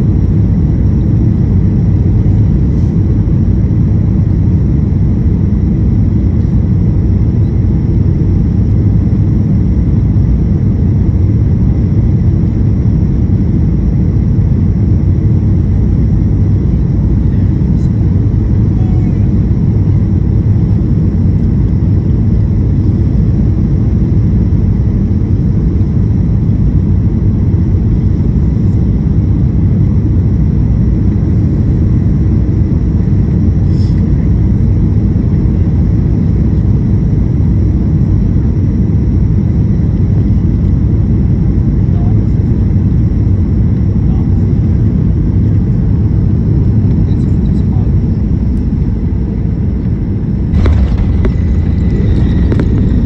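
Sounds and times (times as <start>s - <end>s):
airliner cabin engine rumble: 0.0s - 53.0s.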